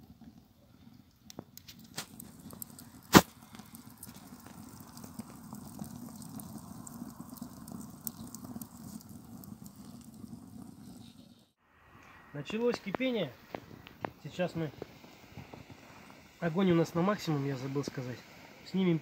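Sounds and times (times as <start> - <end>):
wood fire crackling: 0.0 - 19.0
loud fire pop: 1.7 - 5.3
steady low rush: 11.6 - 19.0.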